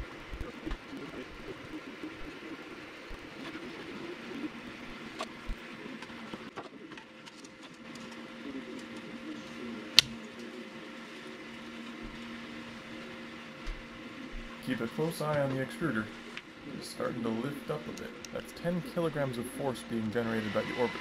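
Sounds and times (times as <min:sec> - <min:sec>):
sharp click: 0:10.0 - 0:10.2
stepper motors whining: 0:14.7 - 0:21.0.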